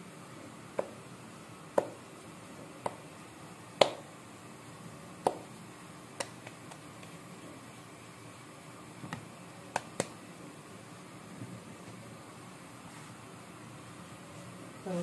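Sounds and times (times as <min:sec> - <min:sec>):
hands slapping dough: 0:00.7 - 0:01.0, 0:01.7 - 0:02.1, 0:02.8 - 0:03.1, 0:03.8 - 0:04.1, 0:05.2 - 0:05.6, 0:06.2 - 0:07.2, 0:09.0 - 0:10.2.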